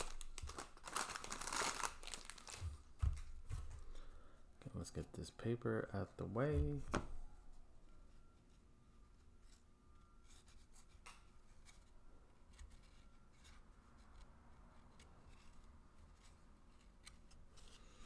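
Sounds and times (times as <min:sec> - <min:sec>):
cards rustling and clicking: 0:00.0 - 0:04.0.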